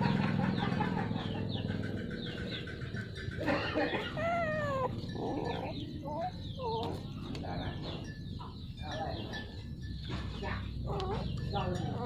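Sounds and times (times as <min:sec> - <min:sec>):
chickens clucking: 0:00.0 - 0:12.0
whining cry falling in pitch: 0:04.0 - 0:05.0.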